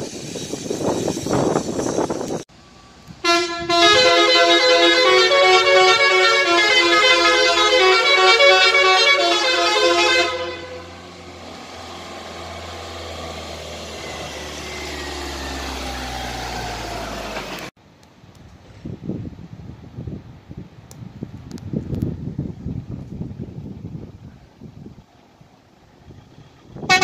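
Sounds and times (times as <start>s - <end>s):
musical van horn tune: 3.2s - 11.2s.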